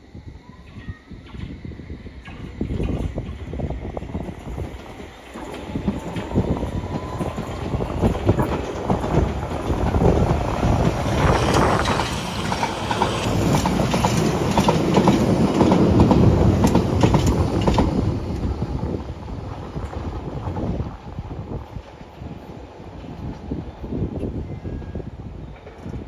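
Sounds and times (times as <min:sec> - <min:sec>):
train rumble: 0:00.0 - 0:26.0
train wheels clattering over rail joints: 0:02.2 - 0:18.7.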